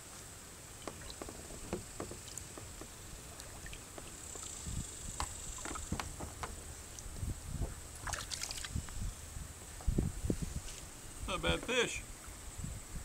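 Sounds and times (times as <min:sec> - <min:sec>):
dull knocks on kayak hull: 0:00.8 - 0:03.0, 0:05.2 - 0:06.8
fish splashing at surface: 0:08.0 - 0:08.7.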